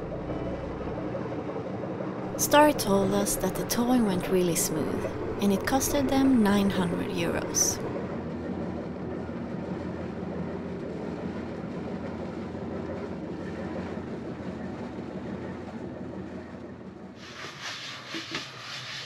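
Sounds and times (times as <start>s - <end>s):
boat engine rumbling: 0.0s - 18.9s.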